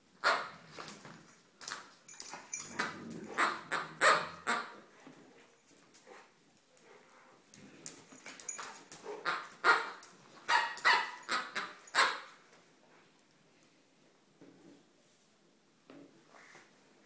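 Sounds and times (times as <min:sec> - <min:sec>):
dog barking: 0:03.3 - 0:04.7, 0:09.1 - 0:12.3.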